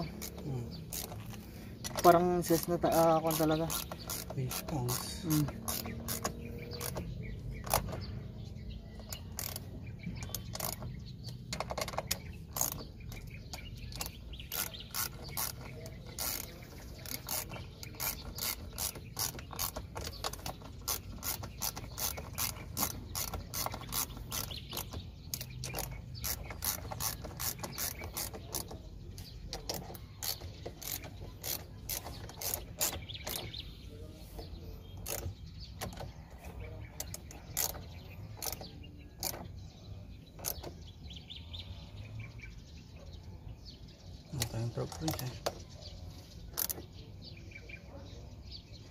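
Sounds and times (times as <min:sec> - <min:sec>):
ratchet wrench clicking: 0:00.0 - 0:08.1, 0:09.0 - 0:33.6, 0:35.0 - 0:36.0, 0:37.0 - 0:39.6, 0:40.4 - 0:40.8, 0:46.5 - 0:46.8.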